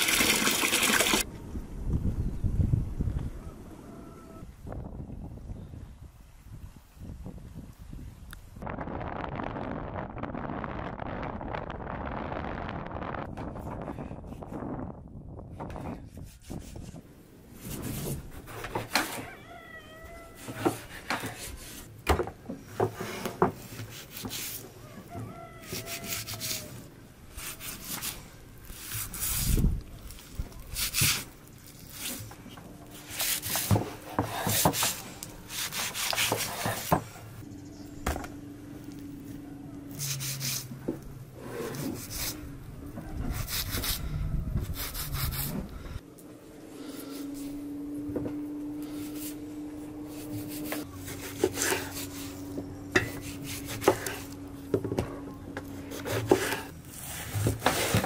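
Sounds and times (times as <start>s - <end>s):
knife scraping on cutting board: 33.0s - 37.0s, 41.4s - 42.4s, 50.0s - 54.4s, 55.8s - 58.0s.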